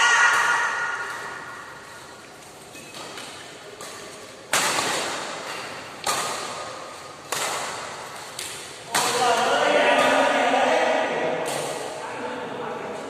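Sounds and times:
badminton rackets hitting shuttlecock: 0.0 - 1.9, 3.0 - 10.5.

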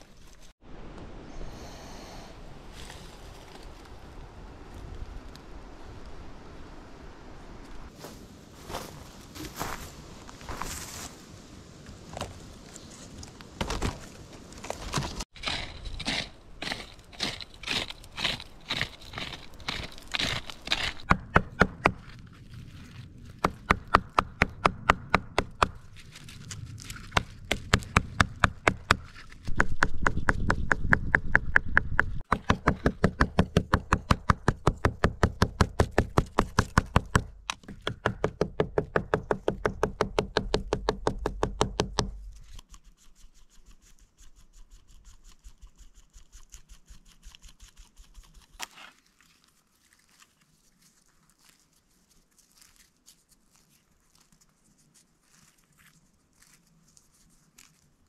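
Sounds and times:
stone pounding leaves on log: 14.9 - 22.2, 23.4 - 42.4
faint handling of fibres: 48.6 - 58.0.

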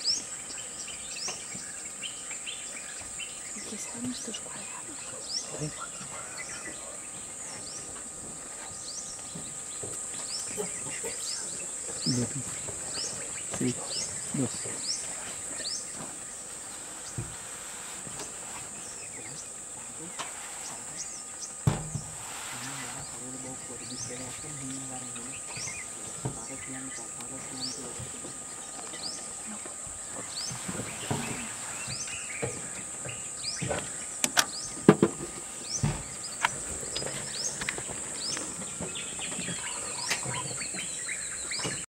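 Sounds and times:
bird chirp: 0.0 - 17.3, 18.2 - 41.9
insect chorus: 0.0 - 41.9
soft thump: 21.6 - 22.3.

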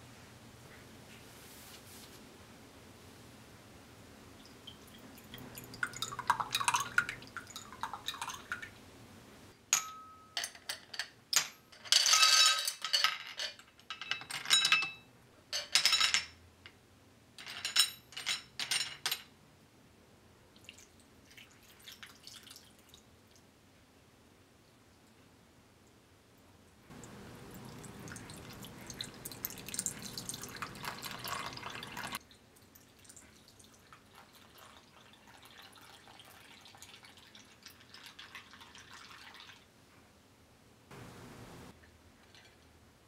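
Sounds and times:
syrup pouring into glass: 27.5 - 32.2.

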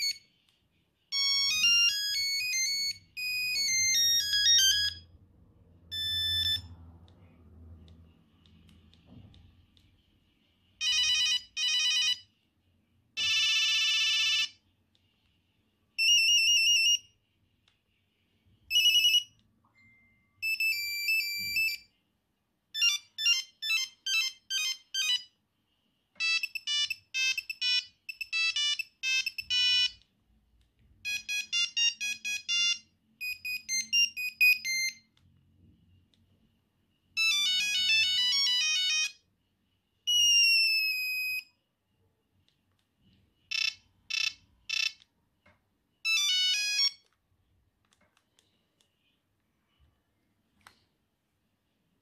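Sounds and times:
monophonic ringtone melodies: 0.0 - 0.3, 1.1 - 5.2, 5.8 - 6.8, 10.8 - 12.3, 16.0 - 17.2, 18.7 - 21.9, 22.8 - 25.3, 26.2 - 30.0, 31.0 - 35.0, 37.2 - 39.3, 46.0 - 47.1.

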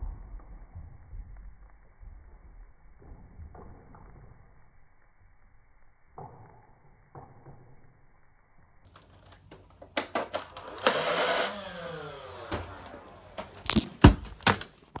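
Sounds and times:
sharp clicks and knocks: 8.9 - 15.0
toy blaster motor whirring: 10.4 - 13.8.

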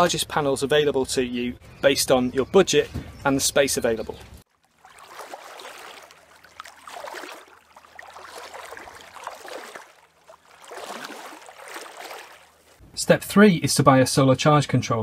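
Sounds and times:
water washing and lapping: 4.4 - 12.8.

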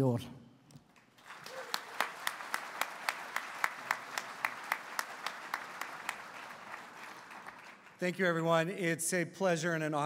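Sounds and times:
close person clapping: 0.9 - 8.0
audience applauding: 0.9 - 8.2.

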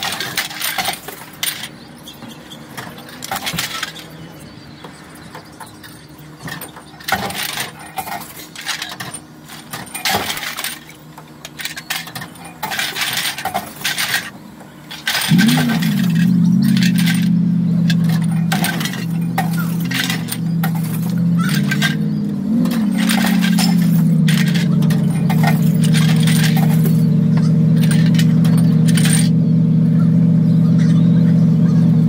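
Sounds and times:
bottles and cans clinking: 11.5 - 29.4
machine humming: 14.9 - 32.0.

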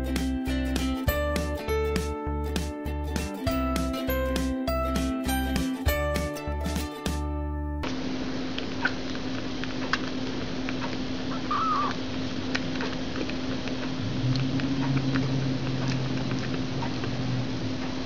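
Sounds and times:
steady hum and hiss: 0.0 - 18.0
kitten warbling chirp: 11.3 - 12.0.

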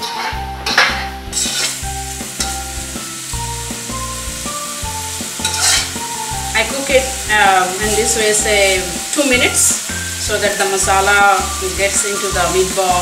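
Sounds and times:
spoon stirring and scraping pan: 0.0 - 6.3
curry sizzling in a steel pan: 0.0 - 13.0
soft background music: 0.0 - 13.0.

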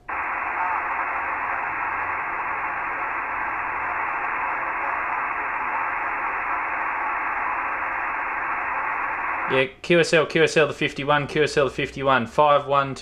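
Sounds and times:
radio static hiss: 0.0 - 9.6.

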